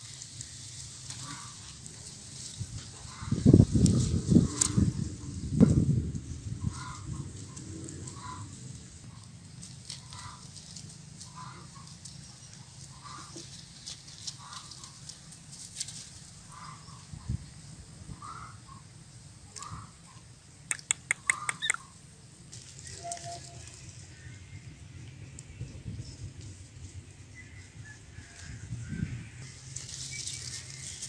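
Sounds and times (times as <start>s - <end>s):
sharp clicks: 20.7s - 21.9s
chicken clucking: 20.7s - 22.0s.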